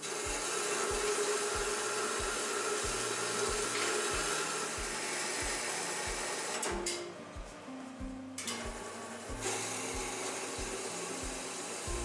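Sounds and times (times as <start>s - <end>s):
band saw blade hissing through steel: 0.0s - 6.7s
constant machine hum: 0.0s - 12.0s.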